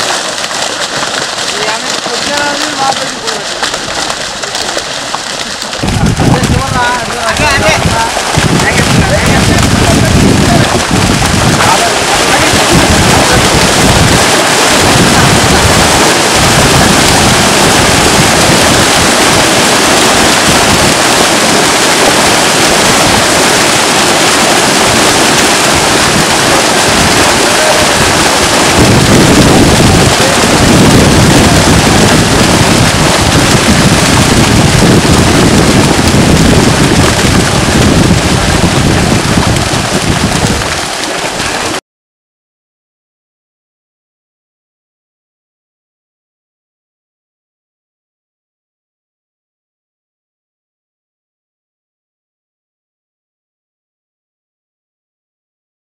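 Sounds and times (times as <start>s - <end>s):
fish splashing in water: 0.0s - 41.8s
heavy low rumble: 1.6s - 41.8s.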